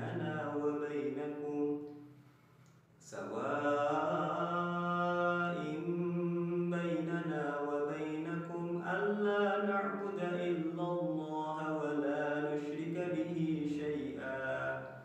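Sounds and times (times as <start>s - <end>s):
man chanting melodically: 0.0s - 1.9s, 3.0s - 15.0s.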